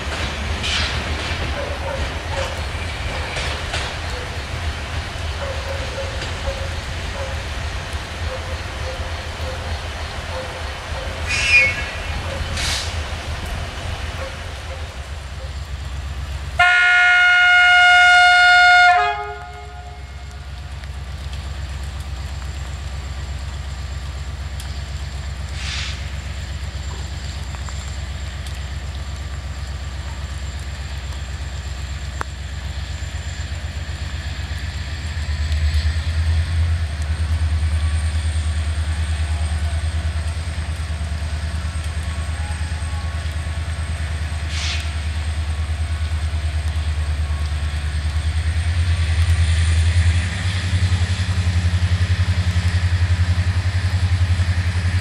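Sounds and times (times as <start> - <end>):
diesel engine rumble: 0.0 - 17.8, 19.1 - 55.0
locomotive horn blast: 11.2 - 12.9, 16.6 - 20.5.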